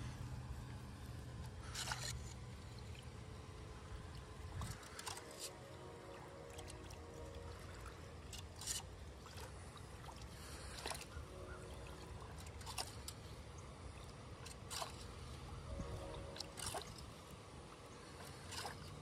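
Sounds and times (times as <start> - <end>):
water trickling into drain: 1.7 - 19.0.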